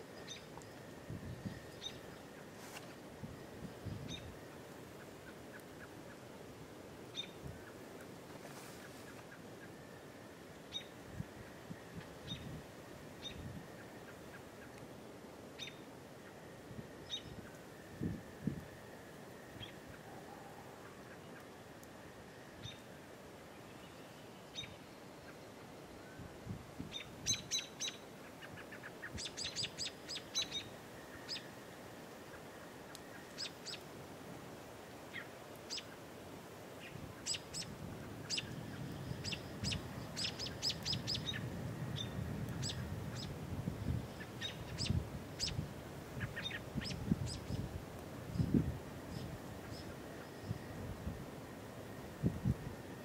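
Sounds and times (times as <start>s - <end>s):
small birds chirping: 0.1s - 2.6s, 26.9s - 31.5s, 36.8s - 37.7s, 38.3s - 45.6s, 46.2s - 47.7s
wind rumble on microphone: 0.2s - 2.2s, 3.0s - 4.5s, 11.0s - 13.8s, 16.5s - 20.2s, 26.2s - 27.5s, 36.9s - 53.0s.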